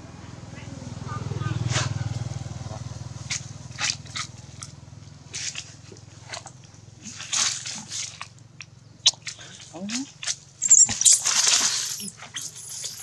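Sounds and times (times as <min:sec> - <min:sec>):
motorbike engine: 0:00.0 - 0:08.9
dry leaves rustling: 0:10.0 - 0:13.0.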